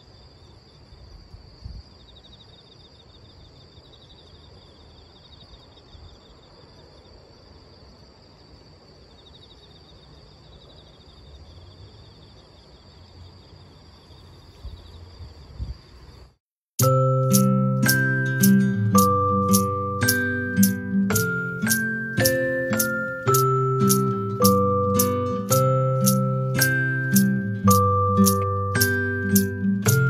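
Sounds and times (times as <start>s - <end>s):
insects chirping in trills: 0.0s - 30.0s
steady hiss: 13.5s - 30.0s
wind rumbling on microphone: 14.6s - 16.1s.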